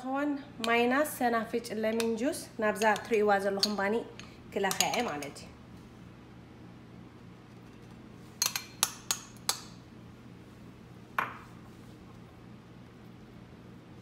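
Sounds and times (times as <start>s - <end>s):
metal spoon clinking on dishes: 2.8s - 5.3s.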